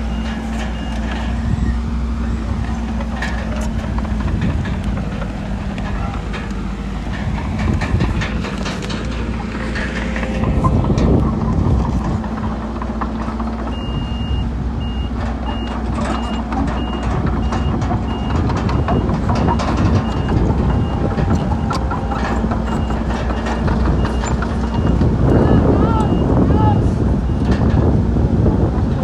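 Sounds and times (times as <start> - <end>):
metal clanks and knocks: 0.0 - 13.8, 15.1 - 25.3
diesel engine running: 0.0 - 29.0
reversing alarm beeps: 13.7 - 27.5.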